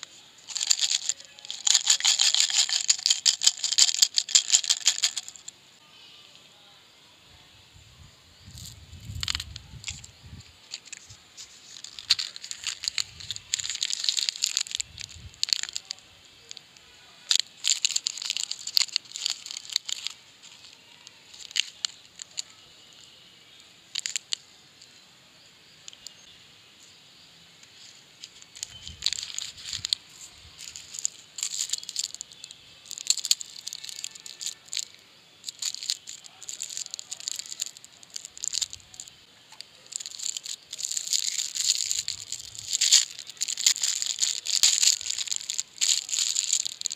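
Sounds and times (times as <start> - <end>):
candy wrappers crinkling and tearing: 0.0 - 5.5, 8.6 - 16.6, 17.2 - 23.1, 23.9 - 24.4, 27.8 - 46.9.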